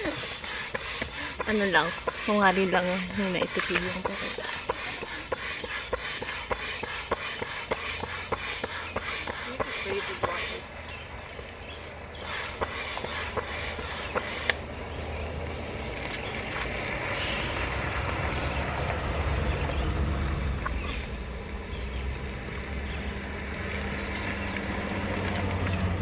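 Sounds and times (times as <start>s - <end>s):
motor humming: 0.0s - 10.8s, 11.4s - 14.8s.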